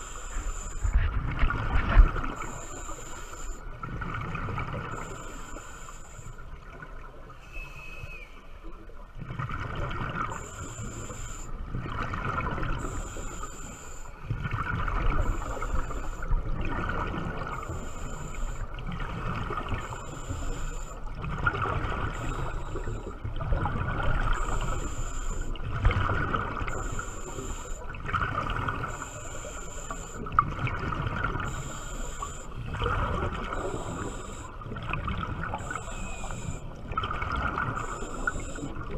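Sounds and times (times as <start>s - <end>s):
exhaled bubbles gurgling: 0.0s - 5.4s, 6.4s - 13.5s, 14.3s - 38.9s
diver inhaling hiss: 2.4s - 3.6s.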